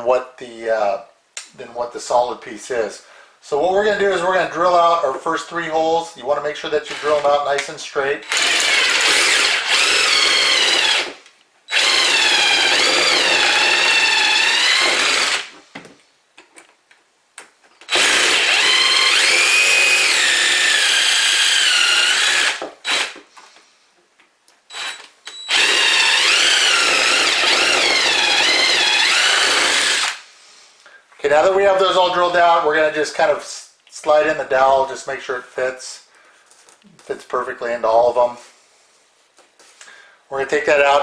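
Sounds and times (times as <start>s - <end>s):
power drill drilling into wood: 6.9s - 7.3s, 8.2s - 15.5s, 17.9s - 23.2s, 24.7s - 30.2s.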